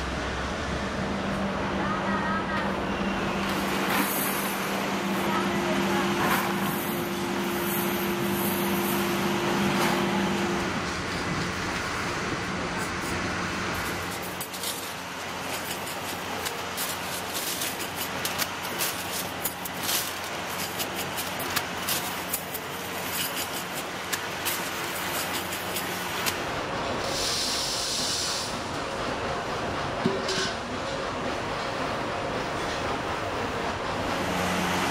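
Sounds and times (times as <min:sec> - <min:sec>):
workshop machine hum: 0:00.0 - 0:34.9
clinking steel wire spokes: 0:13.7 - 0:26.4
small metal parts pouring: 0:13.8 - 0:26.1.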